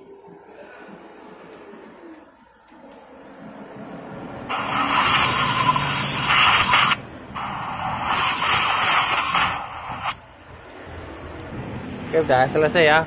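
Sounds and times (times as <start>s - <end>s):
compressed air blow gun hissing: 4.5s - 10.2s.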